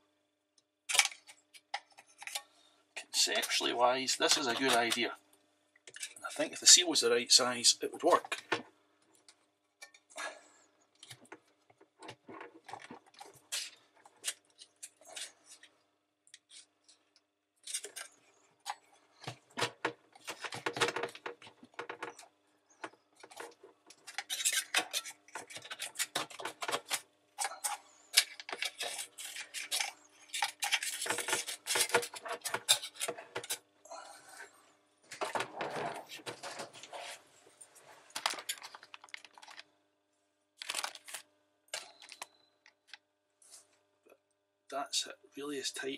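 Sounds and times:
clicking and scraping of plastic: 0:00.9 - 0:05.1, 0:05.8 - 0:06.5, 0:11.0 - 0:15.7, 0:16.3 - 0:33.6, 0:35.1 - 0:37.2, 0:38.1 - 0:39.7, 0:40.6 - 0:43.0.

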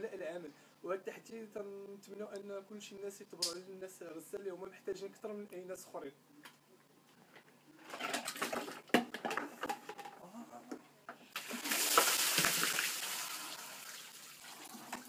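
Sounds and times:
water pouring and splashing: 0:11.4 - 0:15.0.

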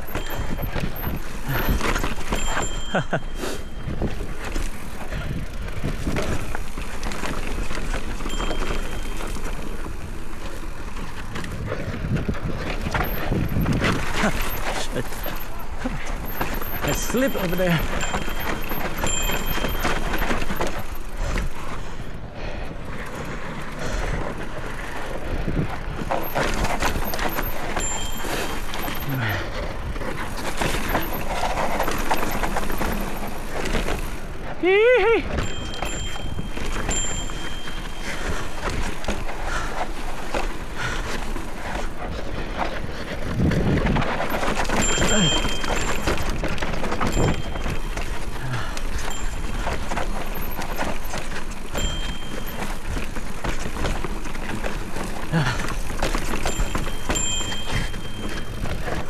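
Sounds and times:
bike knocking and rattling: 0:00.0 - 0:59.0
tyres rumbling over rough ground: 0:00.0 - 0:59.0
wind on microphone: 0:43.2 - 0:44.2.

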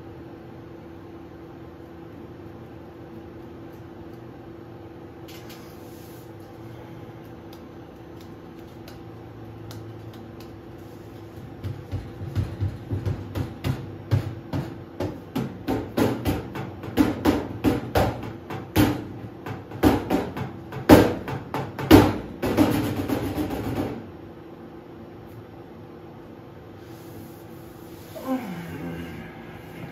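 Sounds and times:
microwave oven humming: 0:00.0 - 0:27.0.

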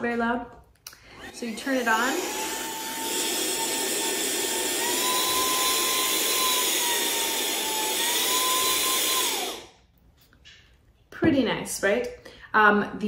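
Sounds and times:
handheld vacuum motor whining: 0:01.1 - 0:09.8.

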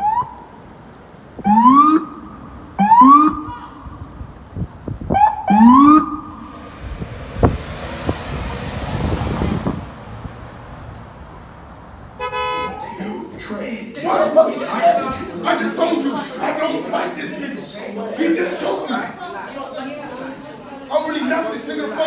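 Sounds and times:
vehicle passing rush: 0:00.0 - 0:18.8
police siren whoops: 0:01.4 - 0:04.0, 0:05.1 - 0:06.6.

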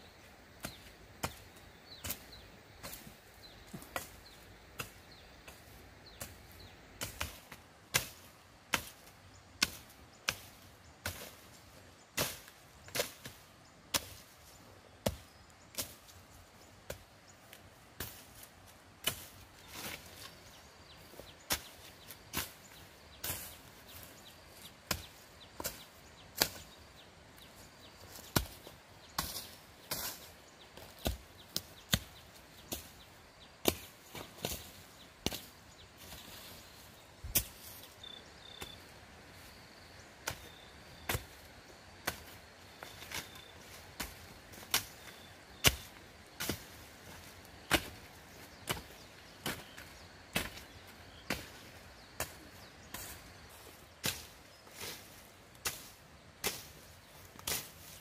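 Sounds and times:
blade chopping dry grass: 0:07.0 - 0:11.5, 0:18.0 - 0:27.0, 0:27.7 - 0:38.8, 0:40.2 - 0:58.0.

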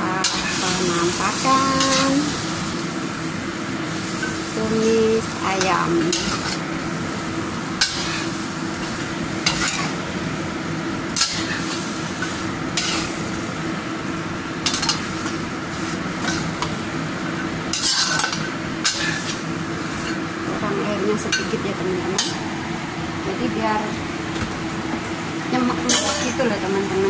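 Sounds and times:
chicken sizzling in a wok: 0:00.0 - 0:27.0
spatula scraping a pan: 0:17.7 - 0:19.4.

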